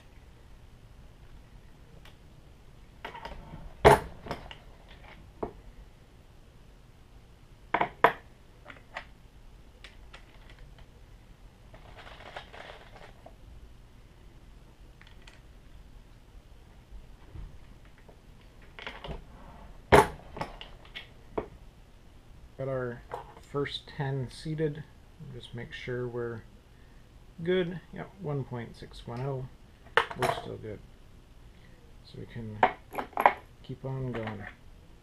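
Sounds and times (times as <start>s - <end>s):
scraping rustle: 11.7s - 13.3s.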